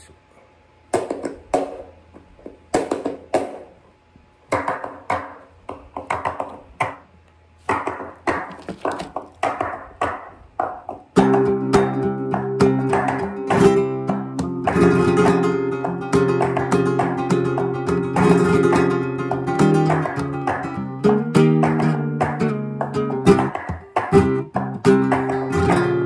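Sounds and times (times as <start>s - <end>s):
rhythmic hand claps: 0.9s - 3.7s, 4.5s - 7.0s, 7.7s - 26.0s
strummed flamenco guitar: 7.7s - 26.0s.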